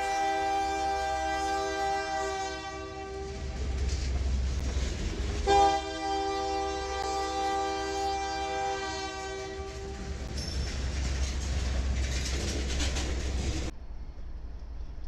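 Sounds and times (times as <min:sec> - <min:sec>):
locomotive air horn chord: 0:00.0 - 0:03.7, 0:05.4 - 0:10.2
train cars rumbling on rails: 0:00.0 - 0:15.0.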